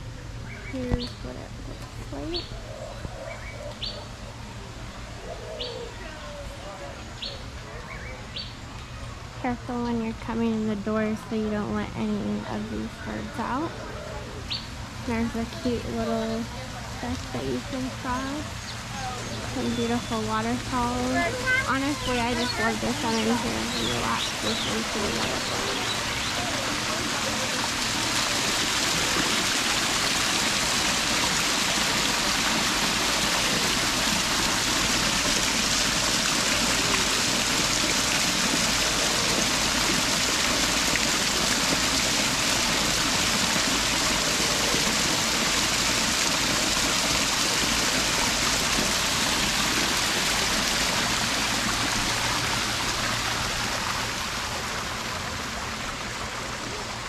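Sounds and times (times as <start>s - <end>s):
waterfall rushing: 18.9s - 57.0s.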